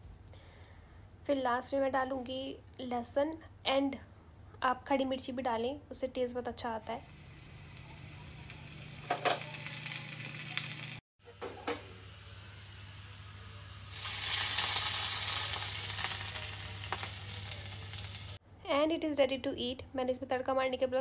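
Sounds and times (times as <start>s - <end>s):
spices sizzling in hot oil: 6.8s - 11.0s, 11.7s - 18.4s
loud sizzle of oil poured on food: 7.0s - 11.0s, 11.9s - 18.4s.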